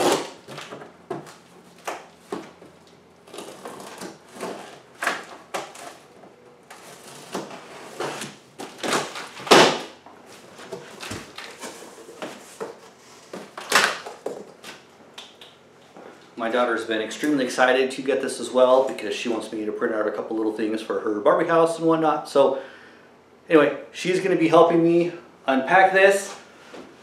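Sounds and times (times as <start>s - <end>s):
cardboard scraping and tearing: 0.0s - 0.8s, 3.2s - 13.9s.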